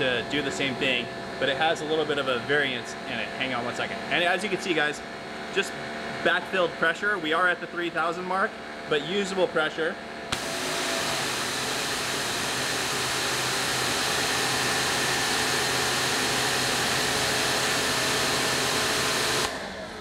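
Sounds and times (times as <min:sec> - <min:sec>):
pressure washer motor hum: 0:10.3 - 0:20.0.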